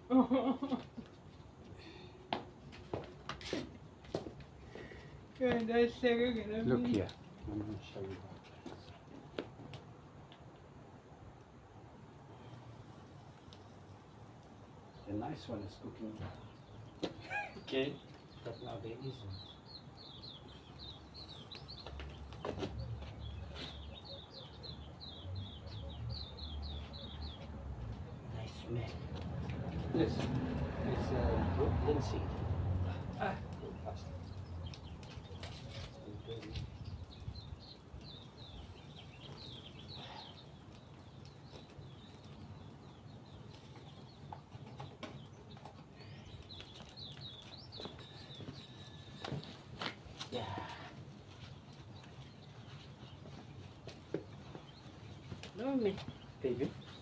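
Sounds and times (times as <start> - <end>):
bird chirping: 12.4 - 31.0, 32.8 - 57.0.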